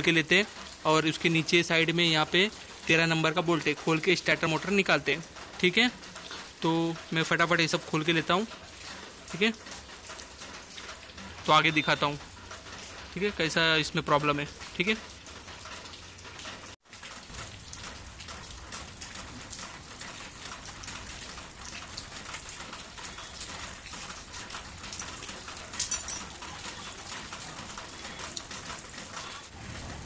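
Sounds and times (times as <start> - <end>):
rain pattering: 0.0 - 30.0
sharp metal clink: 25.9 - 26.3.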